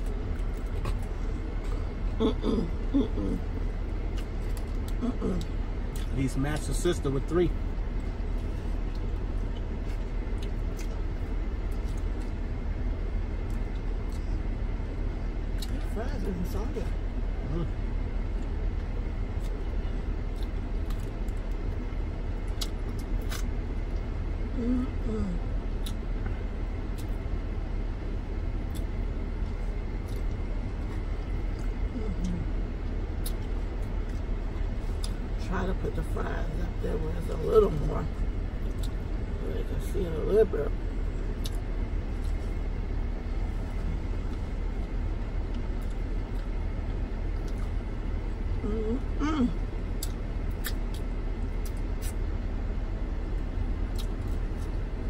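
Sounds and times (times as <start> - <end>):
person chewing fries: 0.0 - 6.9, 7.9 - 12.4, 18.2 - 24.1, 25.7 - 26.2, 26.8 - 27.3, 28.6 - 35.3, 41.2 - 42.7, 43.3 - 47.8, 49.9 - 52.2, 53.9 - 54.9
steady low rumble and hiss: 0.0 - 55.0.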